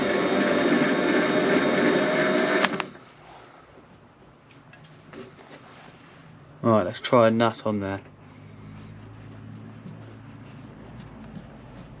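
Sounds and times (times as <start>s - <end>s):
lathe mechanical whine: 0.0s - 2.9s.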